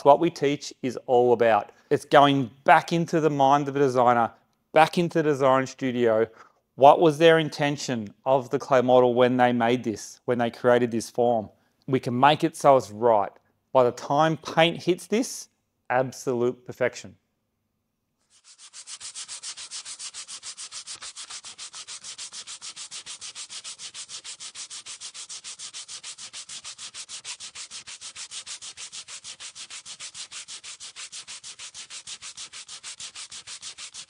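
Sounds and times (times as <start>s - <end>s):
sandpaper rubbing on a surface: 18.2s - 34.0s.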